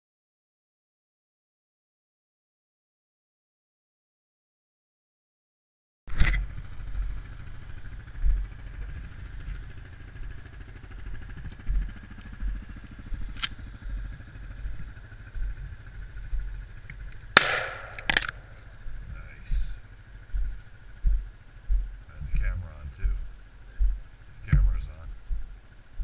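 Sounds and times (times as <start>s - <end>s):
atv engine idling: 6.1s - 26.0s
shotgun shot: 17.4s - 18.6s.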